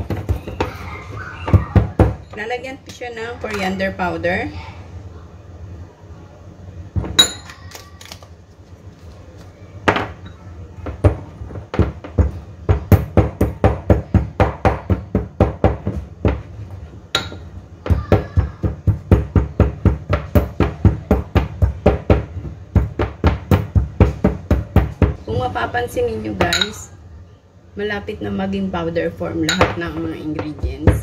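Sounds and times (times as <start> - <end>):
pestle pounding in mortar: 0.0 - 2.3, 10.8 - 16.6, 17.2 - 25.4, 29.5 - 31.0
pestle clinking on bowl: 17.1 - 17.5, 26.4 - 26.8, 29.5 - 31.0.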